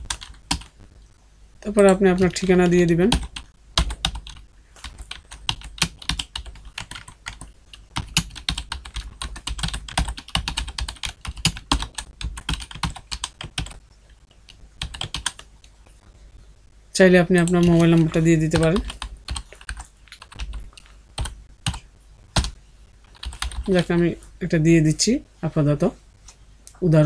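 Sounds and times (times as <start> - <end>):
typing on keyboard: 0.0 - 0.7, 1.9 - 13.8, 14.8 - 15.5, 17.4 - 20.6, 22.4 - 23.9.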